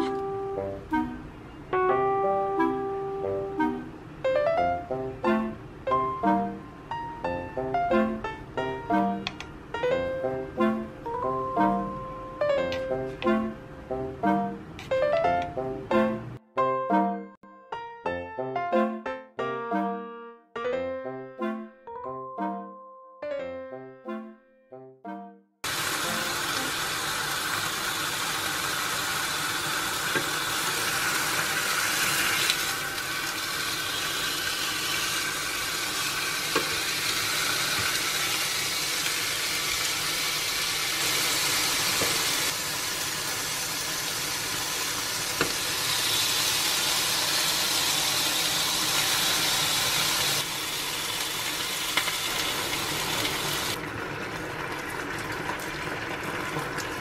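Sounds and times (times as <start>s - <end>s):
meat sizzling in a frying pan: 25.7s - 53.8s.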